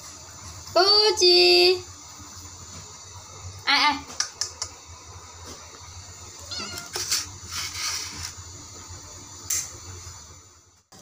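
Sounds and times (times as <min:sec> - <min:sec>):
cat meowing: 0:06.4 - 0:07.1.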